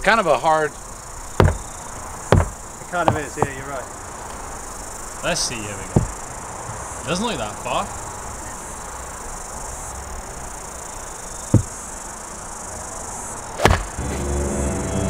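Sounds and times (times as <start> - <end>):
insects chirring: 0.0 - 15.0
dull thump: 1.4 - 1.7, 2.3 - 3.6, 5.9 - 6.8, 11.5 - 11.8, 13.6 - 14.0
golf club striking ball: 13.6 - 14.0.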